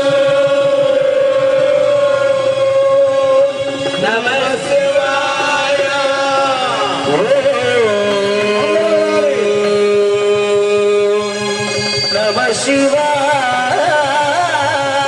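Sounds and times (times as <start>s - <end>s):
man chanting into microphone: 0.0s - 11.4s.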